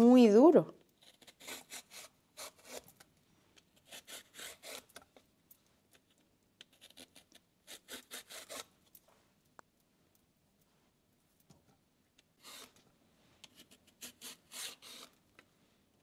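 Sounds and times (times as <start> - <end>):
vegetable peeler scraping: 1.0 - 3.1, 3.7 - 5.1, 6.6 - 8.7, 12.4 - 12.8, 13.4 - 15.2.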